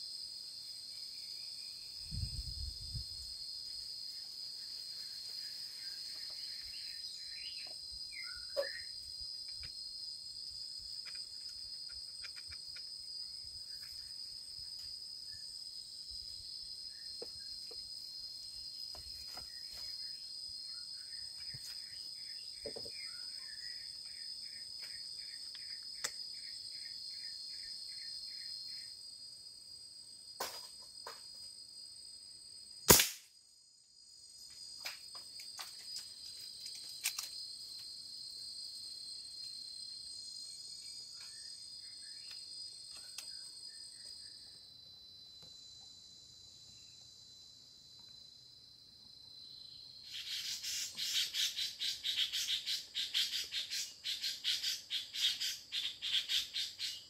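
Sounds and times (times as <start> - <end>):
insect chorus: 0.0 - 57.0
bird calls: 6.2 - 9.0, 50.1 - 57.0
gunshot: 32.9 - 33.3.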